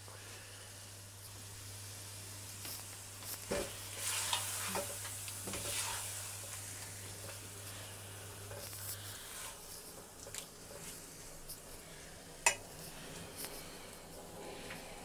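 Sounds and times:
food sizzling in a pan: 0.0s - 14.5s
spatula scraping and knocking pan: 3.4s - 6.2s.

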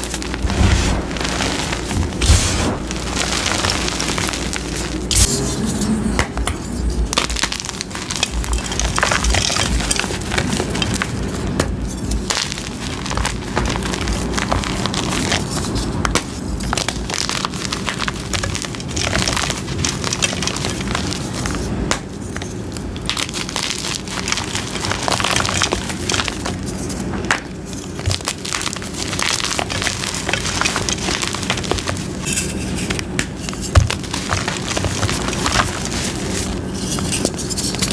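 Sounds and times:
chalk crushed in hands: 23.0s - 37.9s.

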